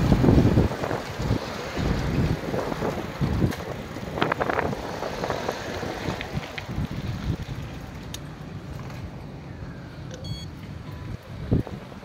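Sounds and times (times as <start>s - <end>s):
wind buffeting microphone: 0.0s - 8.1s, 10.7s - 12.0s
bicycle tyres rolling on concrete: 0.0s - 9.4s.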